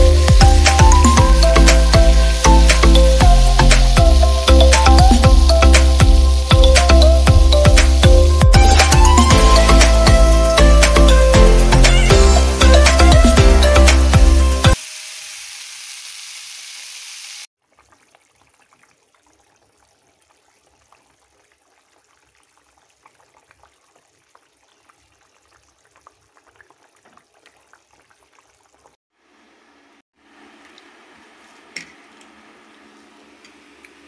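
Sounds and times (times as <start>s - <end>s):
food frying in a wok: 0.0s - 11.0s, 14.7s - 29.3s
background music: 0.0s - 14.8s
gravy simmering with pops: 17.6s - 29.0s.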